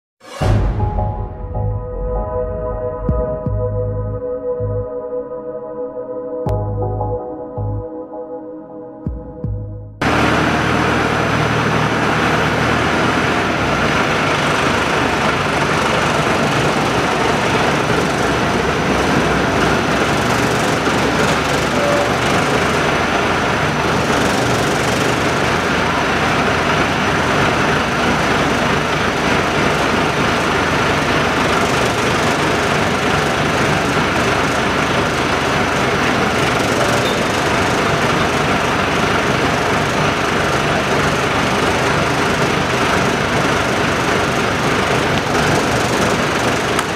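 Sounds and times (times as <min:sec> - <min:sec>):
wheel loader engine running: 0:10.0 - 0:46.9.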